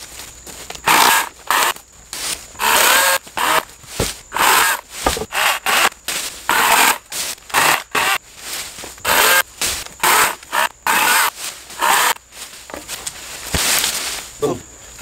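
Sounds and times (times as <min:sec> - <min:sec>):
chainsaw cutting branches: 0:00.8 - 0:08.2, 0:09.0 - 0:12.3
dull thumps: 0:02.6 - 0:05.9.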